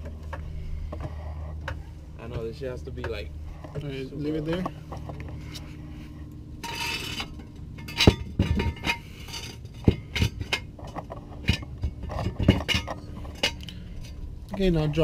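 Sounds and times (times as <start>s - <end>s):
metal clinks and clanks: 6.6s - 14.2s.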